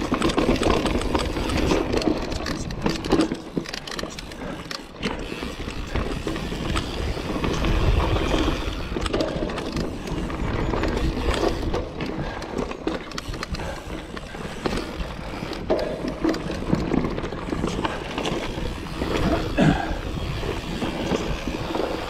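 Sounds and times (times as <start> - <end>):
bike rattles and clicks: 0.0 - 22.0
bike tyres crunching on dirt: 0.0 - 22.0
wind on microphone: 14.6 - 22.0.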